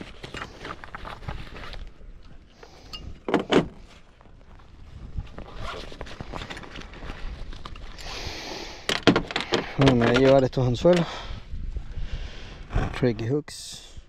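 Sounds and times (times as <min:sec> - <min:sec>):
rummaging through fishing tackle: 0:05.3 - 0:08.0, 0:08.7 - 0:11.1.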